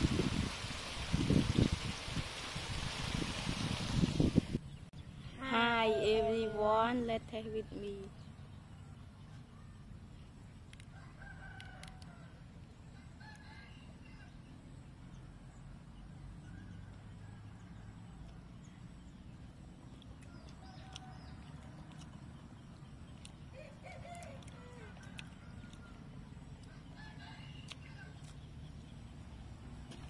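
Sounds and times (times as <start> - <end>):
rooster crowing: 23.5 - 25.9.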